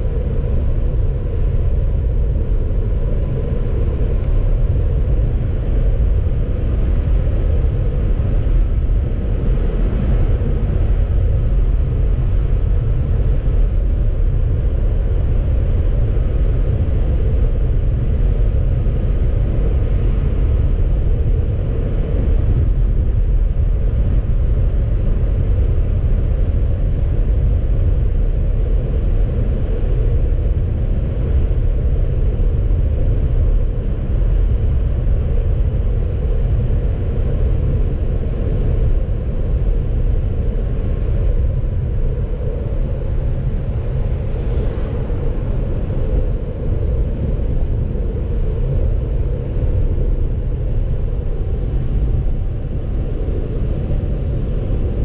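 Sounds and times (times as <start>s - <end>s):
car road and engine rumble: 0.0s - 55.0s
faint even hum: 0.0s - 55.0s.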